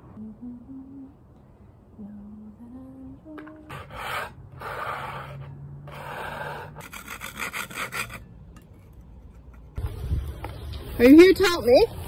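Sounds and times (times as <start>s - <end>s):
plastic scraper rubbing on glass: 3.7s - 8.2s.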